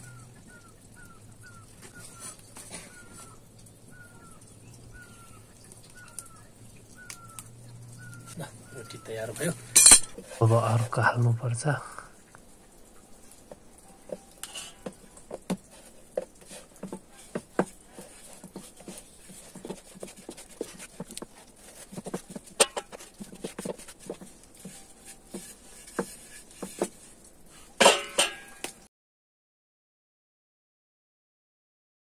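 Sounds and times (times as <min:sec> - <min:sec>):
rolling pin tapping on board: 0:14.8 - 0:27.0.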